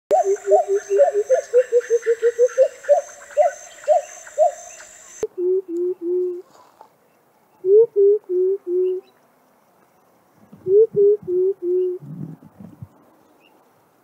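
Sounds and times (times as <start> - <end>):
bird low hooting call: 0.1 - 6.4, 10.6 - 12.5.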